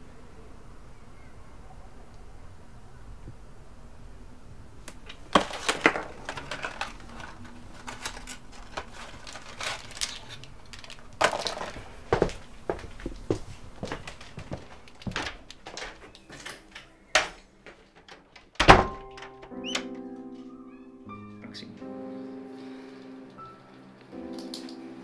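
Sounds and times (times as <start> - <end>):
cardboard box clicks and rustles: 5.1 - 12.4.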